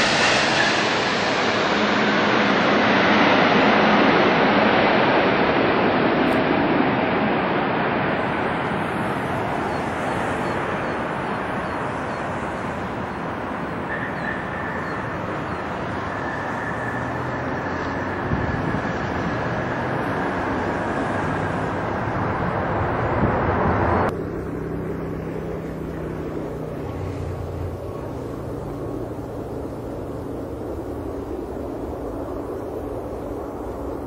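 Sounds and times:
wind noise: 0:00.0 - 0:24.8, 0:25.8 - 0:34.0
jet engine hum on approach: 0:00.0 - 0:34.0
jet engines roaring: 0:00.0 - 0:34.0
faint high whine: 0:08.1 - 0:19.3.

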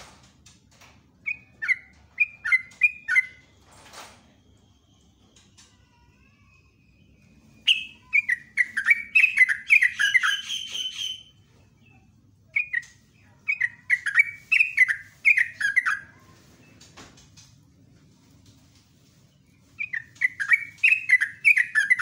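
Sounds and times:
bird singing chattering song: 0:01.2 - 0:03.5, 0:06.6 - 0:16.8, 0:19.4 - 0:22.0.

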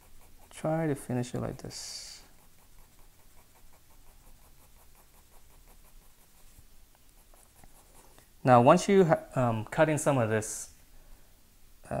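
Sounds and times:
pencil scratching on paper: 0:00.0 - 0:08.2.

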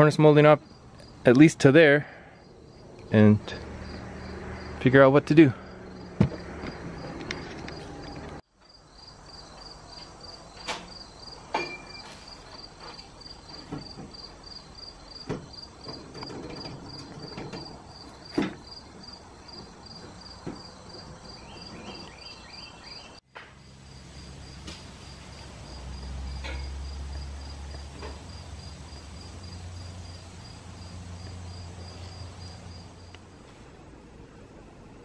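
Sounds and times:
insect chirping: 0:00.6 - 0:01.5, 0:02.1 - 0:04.8, 0:05.6 - 0:07.9, 0:08.6 - 0:33.4
knocks from house work: 0:06.2 - 0:06.8.

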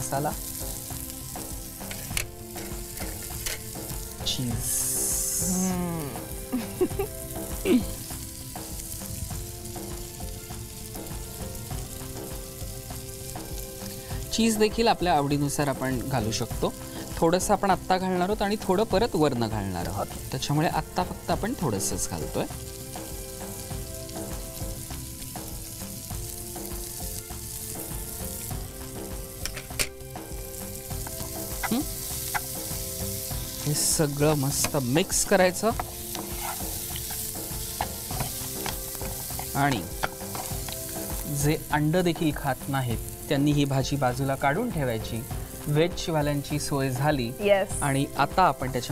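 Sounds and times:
corn sizzling in a frying pan: 0:00.0 - 0:48.9
spatula stirring: 0:31.0 - 0:32.9, 0:33.5 - 0:41.3
cheese grater scraping: 0:36.2 - 0:36.7.

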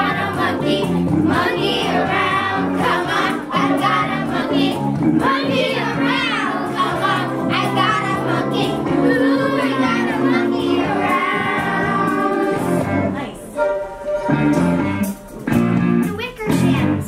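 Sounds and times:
children singing together: 0:00.0 - 0:13.6
instrumental accompaniment: 0:00.0 - 0:17.0.

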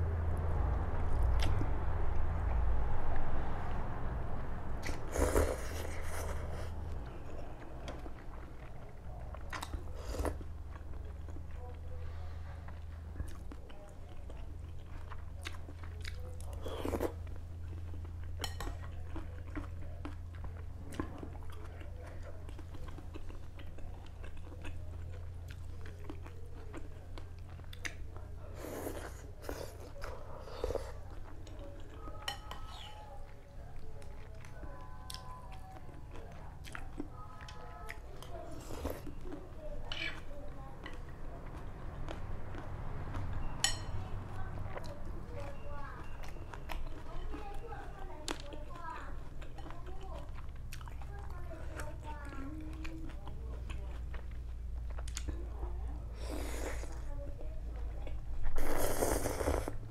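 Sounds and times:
low hum: 0:00.0 - 0:09.2
person slurping noodles: 0:04.8 - 0:06.7, 0:58.5 - 0:59.8.

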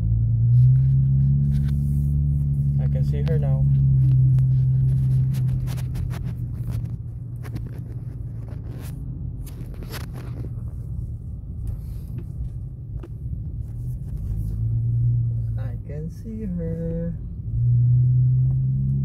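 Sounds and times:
car engine idling: 0:00.0 - 0:17.6
handling rustles and clicks: 0:03.1 - 0:14.6.

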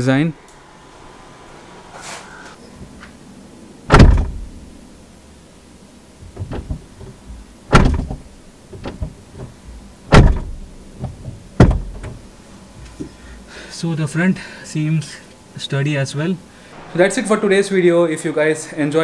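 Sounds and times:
car door slamming: 0:03.9 - 0:04.7, 0:06.2 - 0:12.3.

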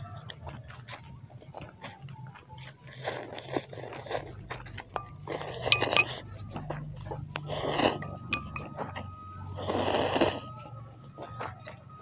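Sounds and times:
noodles slurped and chewed: 0:00.0 - 0:10.6
low steady hum: 0:04.2 - 0:11.2.

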